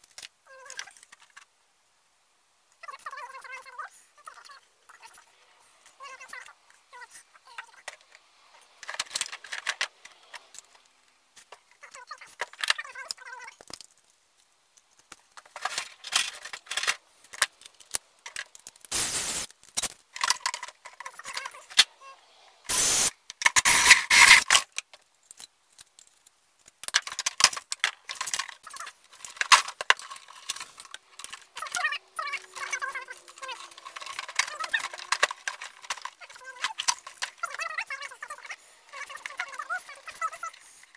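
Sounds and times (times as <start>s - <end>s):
cordless drill running: 22.7s - 24.4s
tools clattering on a workbench: 32.4s - 37.5s.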